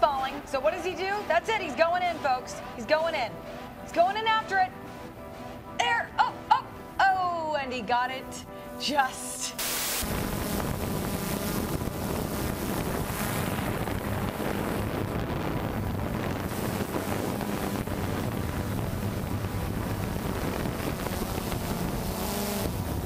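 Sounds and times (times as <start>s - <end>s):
drone propellers humming: 9.5s - 23.0s
wind buffeting microphone: 10.0s - 23.0s.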